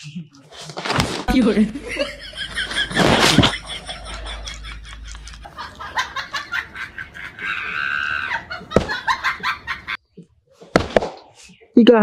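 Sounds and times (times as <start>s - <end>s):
person laughing: 1.7s - 10.0s.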